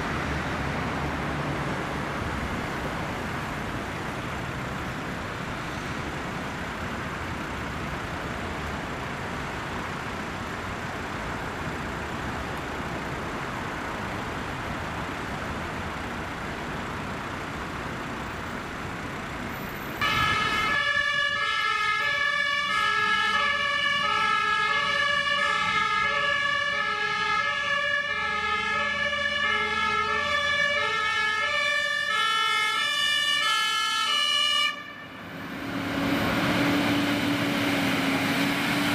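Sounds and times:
road traffic: 0.0 - 38.9
fire engine two-tone siren: 20.0 - 38.9.

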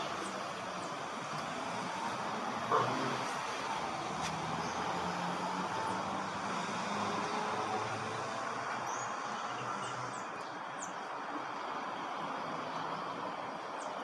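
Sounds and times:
distant traffic hum: 0.0 - 14.0.

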